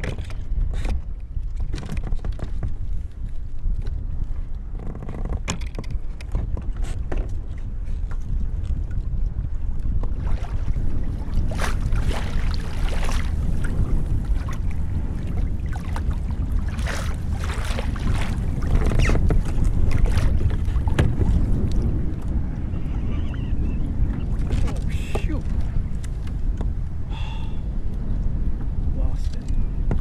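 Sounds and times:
water slapping kayak hull: 0:00.0 - 0:30.0
wind buffeting microphone: 0:00.0 - 0:30.0.

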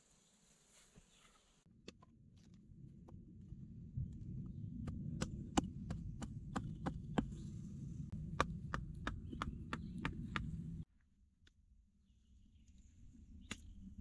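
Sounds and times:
low steady rumble: 0:01.7 - 0:10.9
hatchet chopping wood: 0:04.8 - 0:07.4, 0:08.3 - 0:10.5.

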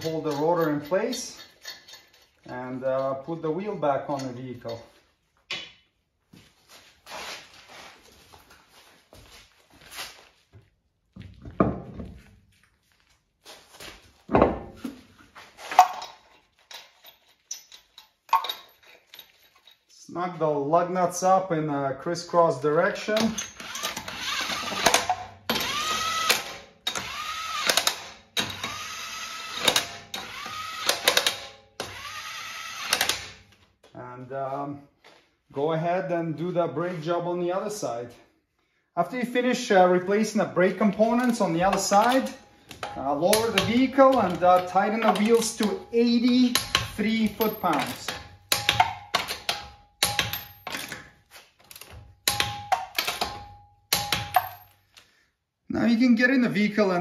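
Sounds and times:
impact wrench whining and hammering: 0:00.0 - 0:02.6, 0:13.7 - 0:19.6, 0:23.0 - 0:33.7, 0:40.9 - 0:55.1
torque wrench clicking: 0:32.7 - 0:33.3.

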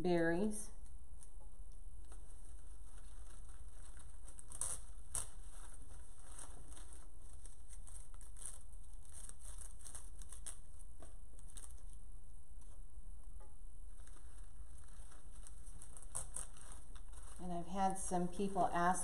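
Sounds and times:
plastic foliage rustling and crinkling: 0:02.0 - 0:12.0, 0:13.9 - 0:19.0.

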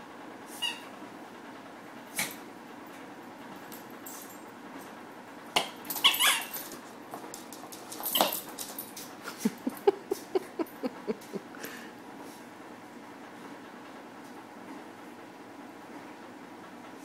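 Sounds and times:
dog scuffling: 0:05.8 - 0:10.3
squeaky toy squeaks: 0:06.0 - 0:06.6.

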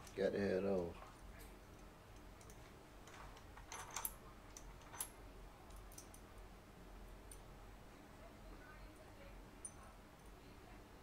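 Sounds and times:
small metal spacers clicking: 0:01.6 - 0:05.1.

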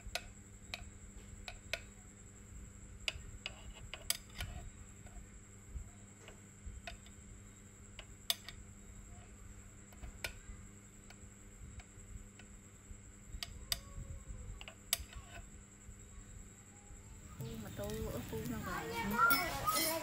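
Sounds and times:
faint steady hum: 0:00.0 - 0:20.0
utensils clicking against dishes: 0:17.8 - 0:20.0.

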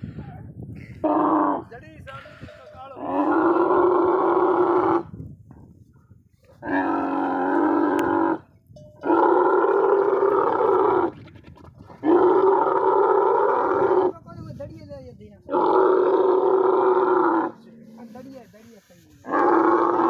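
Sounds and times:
camels groaning calls: 0:00.9 - 0:05.2, 0:06.5 - 0:14.2, 0:15.5 - 0:18.3, 0:19.2 - 0:20.0.

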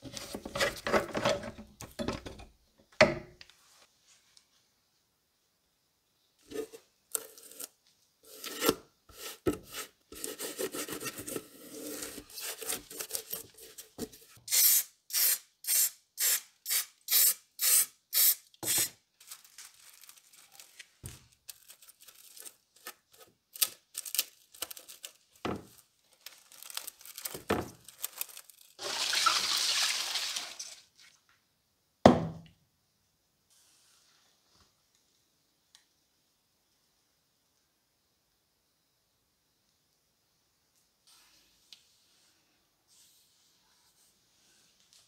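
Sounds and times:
foil tape crinkling: 0:18.8 - 0:28.8.

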